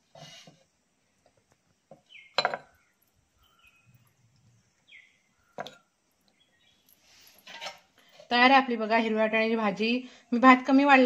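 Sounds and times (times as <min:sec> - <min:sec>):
steel ladle clinking on dishes: 0:02.4 - 0:02.7.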